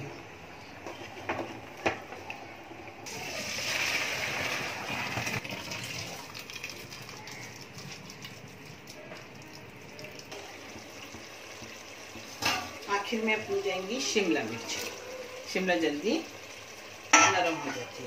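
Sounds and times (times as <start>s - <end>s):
water gushing through colander: 3.0s - 18.0s.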